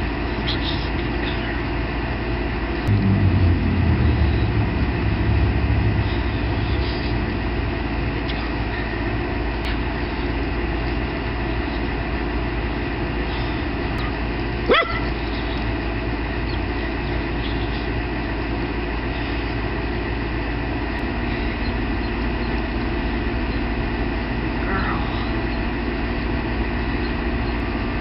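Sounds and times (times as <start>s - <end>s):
steady background noise: 0.0s - 28.0s
dog barking: 14.7s - 15.2s.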